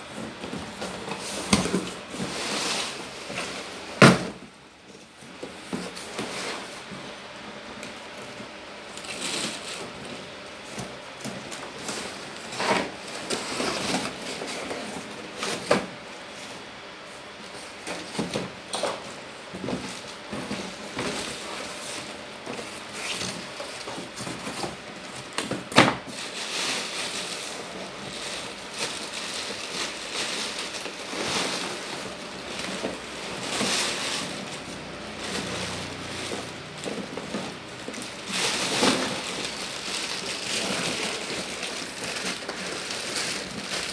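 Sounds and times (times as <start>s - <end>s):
plastic wrapping crinkling: 19.8s - 43.9s.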